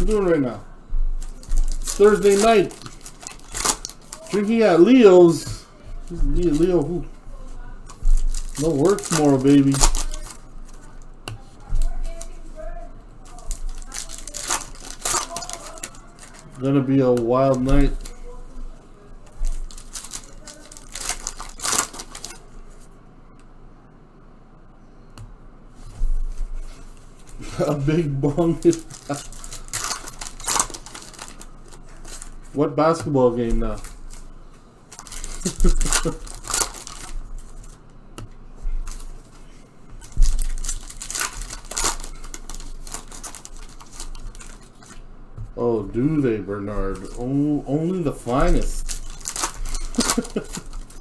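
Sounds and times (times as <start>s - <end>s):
foil wrapper tearing and crinkling: 1.2s - 5.6s, 6.2s - 7.1s, 7.9s - 11.0s, 13.3s - 18.4s, 19.3s - 22.4s, 27.3s - 32.5s, 34.9s - 37.8s, 38.8s - 39.0s, 40.0s - 44.9s, 46.9s - 51.0s.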